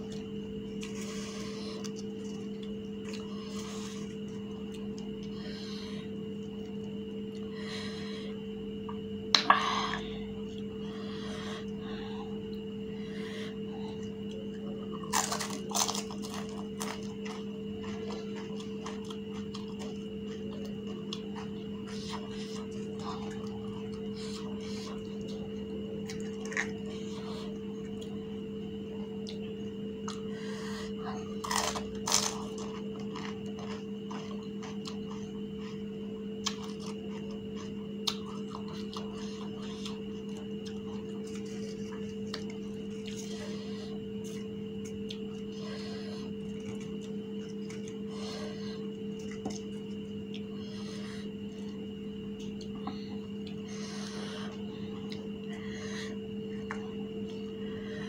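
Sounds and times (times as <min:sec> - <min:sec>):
steady hum: 0:00.0 - 0:58.0
crisp shells crunching: 0:14.9 - 0:21.1, 0:31.4 - 0:35.2.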